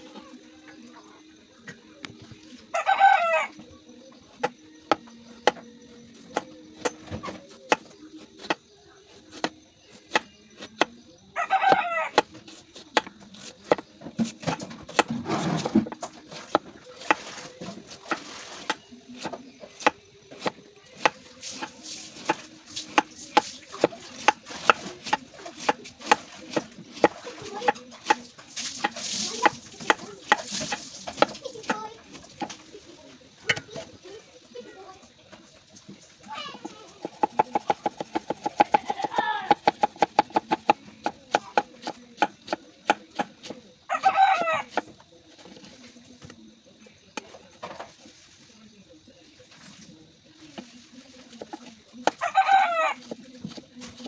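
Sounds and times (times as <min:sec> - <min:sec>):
knife chopping on cutting board: 0:09.3 - 0:10.9, 0:18.0 - 0:28.2, 0:28.8 - 0:31.4, 0:37.0 - 0:43.6.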